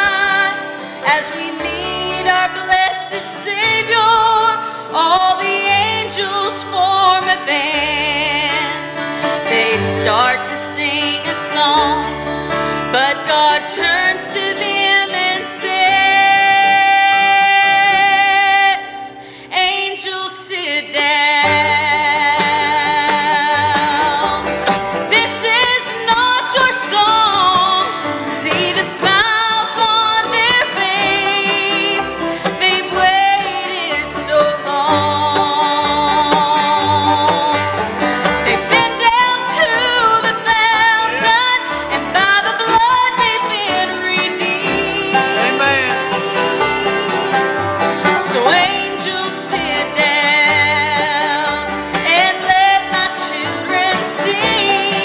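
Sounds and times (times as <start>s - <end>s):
woman singing with vibrato: 0.0s - 24.5s, 25.1s - 37.7s, 38.4s - 55.0s
acoustic guitar: 0.0s - 55.0s
mandolin: 0.0s - 55.0s
upright bass: 21.4s - 55.0s.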